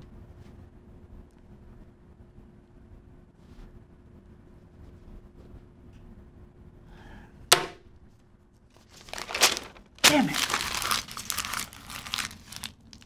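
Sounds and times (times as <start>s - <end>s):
sharp knock: 7.5s - 7.9s
paper tearing and crumpling: 8.8s - 13.0s.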